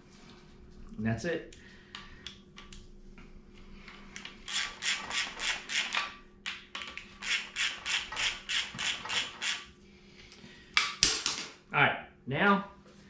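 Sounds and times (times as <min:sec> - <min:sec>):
ratchet wrench clicking: 0:04.2 - 0:06.0, 0:07.2 - 0:09.6.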